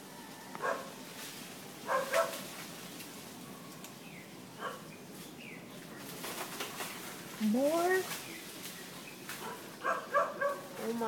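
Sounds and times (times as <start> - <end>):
animal barking: 0.6 - 0.9, 1.8 - 2.4, 4.6 - 4.9, 9.4 - 10.8.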